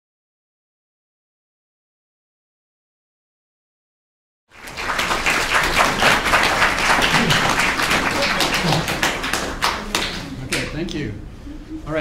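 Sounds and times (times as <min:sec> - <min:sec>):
audience applauding: 0:04.5 - 0:10.7.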